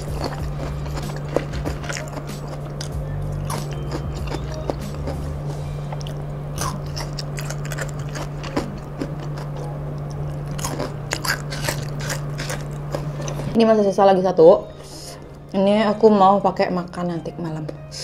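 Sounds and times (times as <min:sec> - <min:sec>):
crunching and chewing: 0:00.0 - 0:13.6
low hum: 0:00.0 - 0:18.0.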